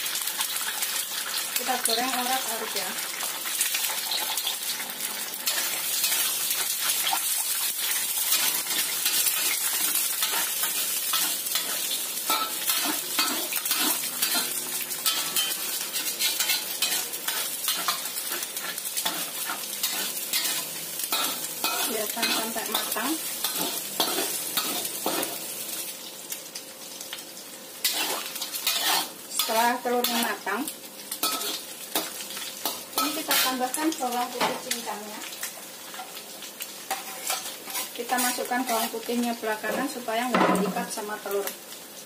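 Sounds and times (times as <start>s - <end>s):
eggs sizzling in oil: 0.0s - 42.0s
utensil clicking and scraping a pan: 5.5s - 25.3s, 27.8s - 30.2s, 36.9s - 38.9s.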